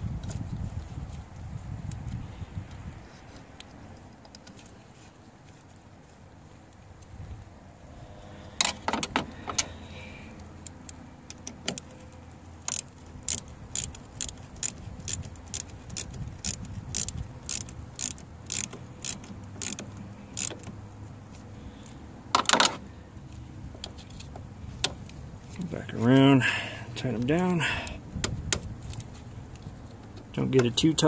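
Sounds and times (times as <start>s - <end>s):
hand ratchet clicking: 12.6s - 20.7s.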